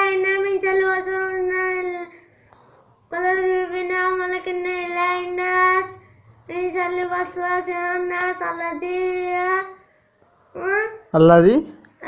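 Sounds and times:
child chanting recitation: 0.0s - 2.3s, 3.1s - 9.9s, 10.5s - 11.1s.

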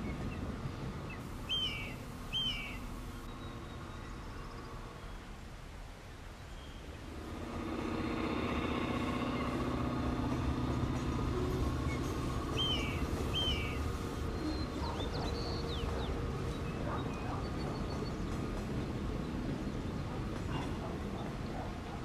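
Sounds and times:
birds chirping: 0.0s - 5.3s, 10.8s - 20.5s
diesel locomotive engines droning: 0.0s - 6.0s, 6.8s - 22.0s.

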